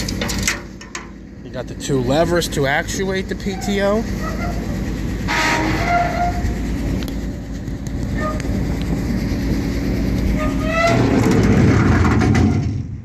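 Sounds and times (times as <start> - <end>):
truck winch gear drone: 0.0 - 12.9.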